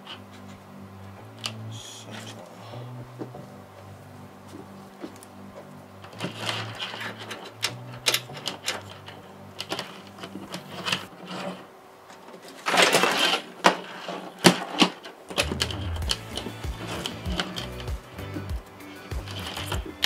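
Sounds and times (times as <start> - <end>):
cables rustling against metal: 4.4 - 20.0
scraping rustle: 6.0 - 18.5.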